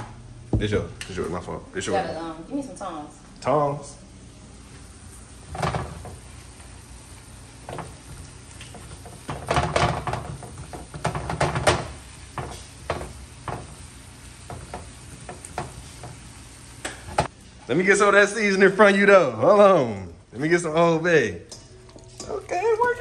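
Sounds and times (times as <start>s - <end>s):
meat sizzling: 4.4s - 23.0s
spatula scraping a frying pan: 8.7s - 13.8s.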